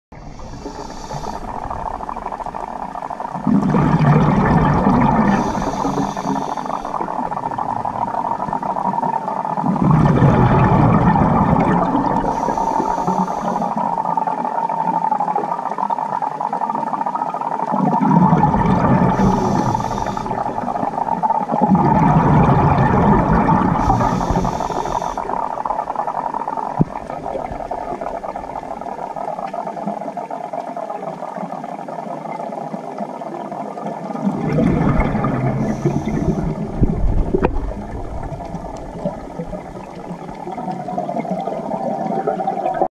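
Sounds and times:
steady hum: 0.1 - 14.2, 18.3 - 29.4, 34.4 - 40.6
exhaled bubbles rumbling: 0.1 - 42.9
regulator inhale hiss: 0.2 - 3.3, 5.1 - 7.4, 12.0 - 14.0, 19.0 - 21.2, 23.5 - 26.9, 35.6 - 36.6.

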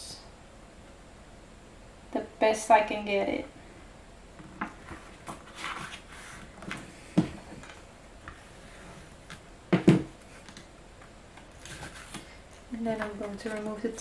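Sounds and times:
paper and plastic sheet rustling: 4.8 - 6.8, 11.4 - 14.0.

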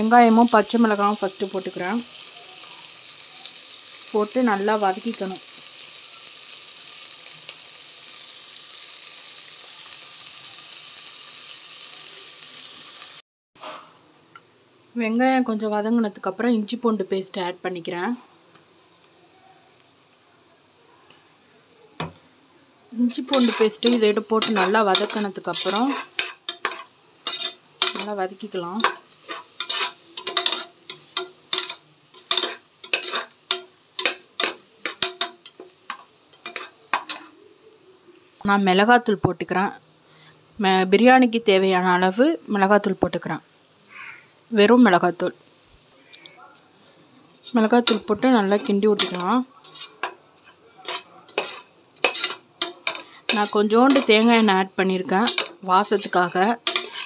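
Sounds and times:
onions sizzling in hot oil: 0.0 - 13.8, 15.0 - 21.2, 22.9 - 57.0
metal spatula scraping a pot: 23.1 - 28.2, 28.8 - 37.4, 47.4 - 54.5, 55.2 - 57.0.

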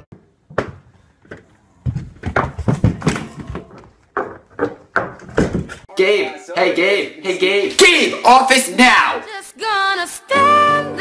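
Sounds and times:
high heels on tile floor: 0.2 - 5.9.

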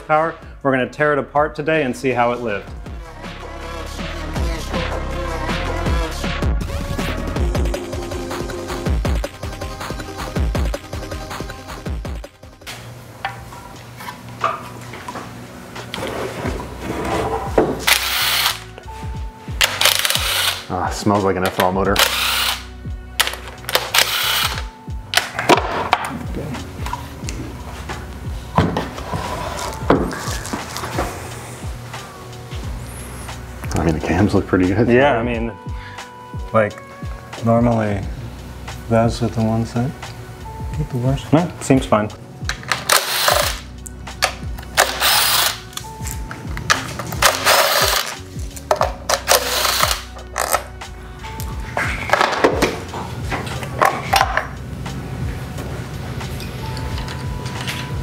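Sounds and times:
background music with a beat: 2.7 - 14.5, 18.6 - 41.2, 42.4 - 58.0
impact driver bursts: 17.8 - 18.6, 19.6 - 20.7, 22.0 - 22.7, 23.7 - 24.7, 42.8 - 43.6, 44.8 - 45.6, 49.2 - 50.1.

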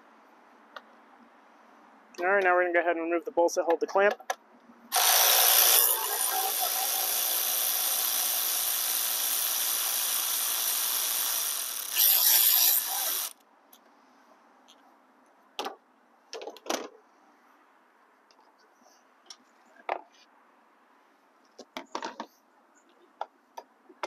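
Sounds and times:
electric ratchet running: 4.9 - 13.4.

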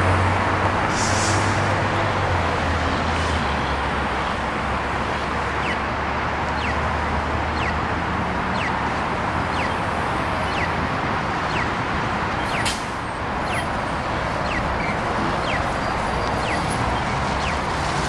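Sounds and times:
city street traffic: 0.0 - 18.0
crossing signal chirp: 5.6 - 5.9, 6.5 - 6.9, 7.5 - 7.9, 8.5 - 8.8, 9.5 - 10.8, 11.5 - 11.8, 13.4 - 13.8, 14.4 - 16.8.

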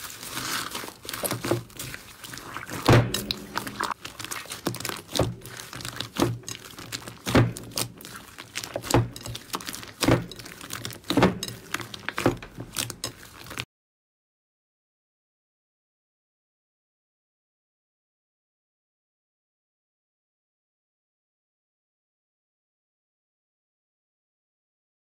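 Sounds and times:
crunchy slime crackling: 0.0 - 13.6
slime squelching pop: 2.4 - 12.9.

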